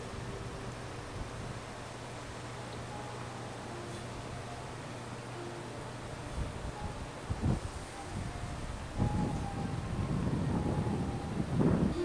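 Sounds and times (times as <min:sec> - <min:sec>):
wind buffeting microphone: 0:06.3 - 0:12.0.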